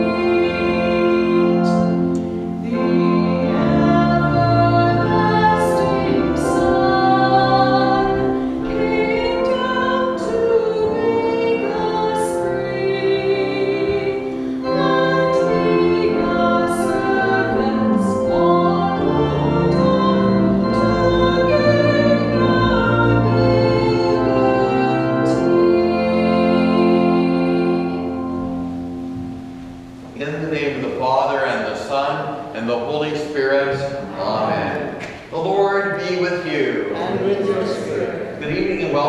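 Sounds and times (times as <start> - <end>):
woman singing a hymn: 0.0 - 29.5
church organ playing chords: 0.0 - 32.9, 35.8 - 39.0.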